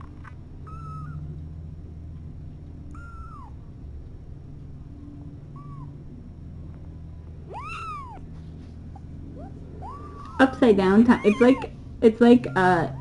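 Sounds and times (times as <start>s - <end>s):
kittens mewing: 0.6s - 1.2s, 2.9s - 3.6s, 5.5s - 6.0s, 7.5s - 13.0s.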